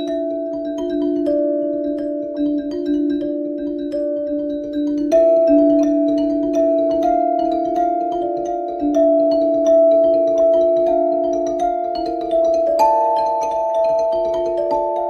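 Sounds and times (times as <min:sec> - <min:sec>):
bell-like mallet tones: 0:00.0 - 0:15.0.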